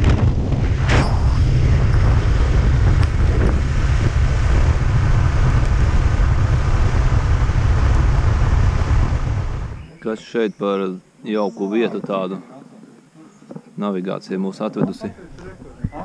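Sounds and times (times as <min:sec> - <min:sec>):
motorcycle ride rumble: 0:00.0 - 0:09.9
wind buffeting microphone: 0:00.0 - 0:10.0, 0:15.1 - 0:16.0.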